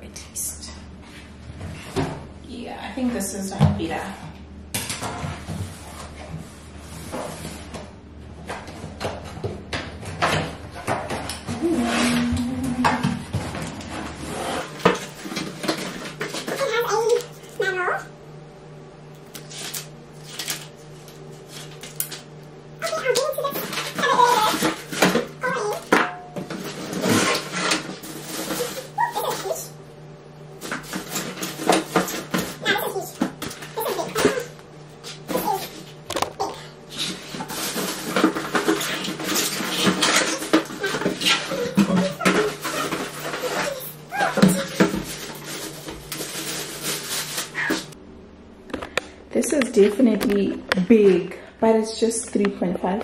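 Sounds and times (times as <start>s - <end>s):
steady low hum: 0.0s - 53.0s
cardboard scraping and rustling: 13.3s - 17.1s, 26.5s - 29.6s, 36.9s - 48.0s.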